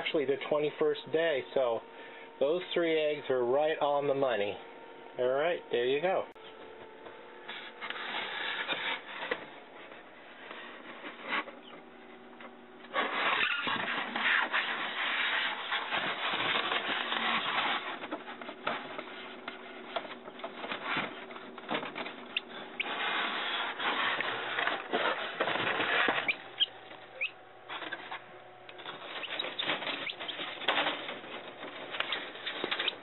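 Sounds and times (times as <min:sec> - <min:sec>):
faint steady hum: 0:00.0 - 0:33.0
plastic parts rubbing and scraping: 0:07.4 - 0:11.8, 0:12.8 - 0:33.0.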